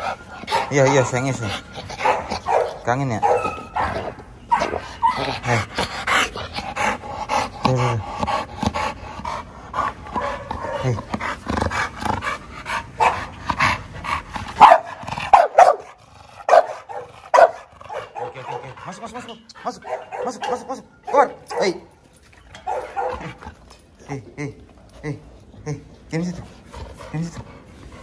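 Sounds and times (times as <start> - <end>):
dog panting: 0.0 - 22.0, 24.9 - 28.0
dog vocalising excitedly: 0.0 - 23.7
dog barking: 2.0 - 4.8, 13.0 - 13.3, 14.6 - 18.8, 19.8 - 21.8, 22.7 - 23.3.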